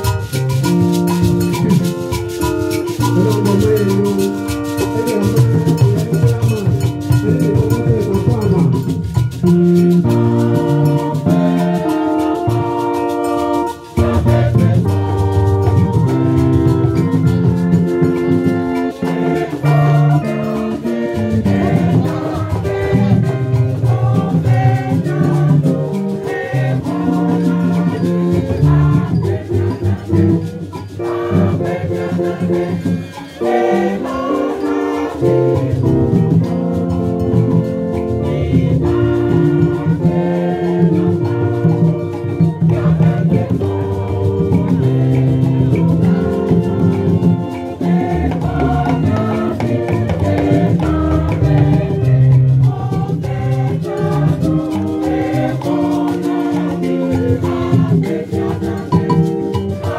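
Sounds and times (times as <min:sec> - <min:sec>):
hand drums beat: 0:00.0 - 0:59.9
rattle shaking: 0:00.0 - 0:59.9
choir singing: 0:10.2 - 0:36.2, 0:38.1 - 0:59.9.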